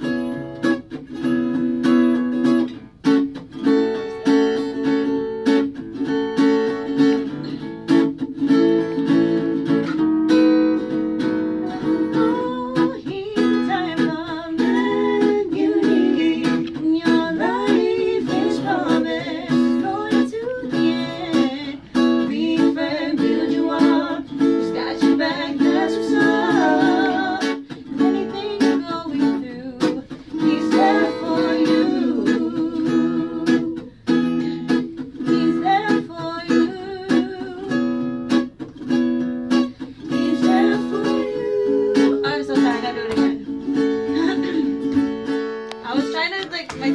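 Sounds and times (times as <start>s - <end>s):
strummed acoustic guitar: 0.0s - 46.9s
woman singing: 11.4s - 38.2s, 39.9s - 45.0s, 45.8s - 46.9s.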